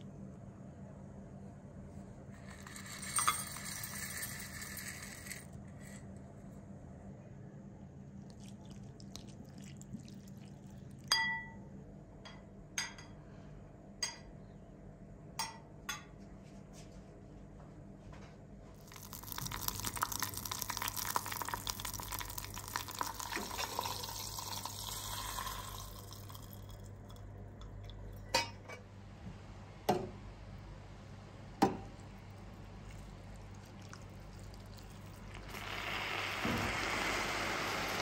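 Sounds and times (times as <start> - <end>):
nuts rattling into bowl: 2.4 - 5.6, 18.8 - 26.8
china and metal clinking: 2.4 - 6.0.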